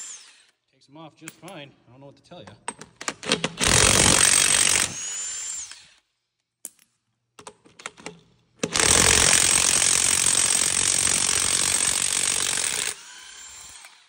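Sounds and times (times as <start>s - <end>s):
impact wrench rattling: 7.4s - 13.0s.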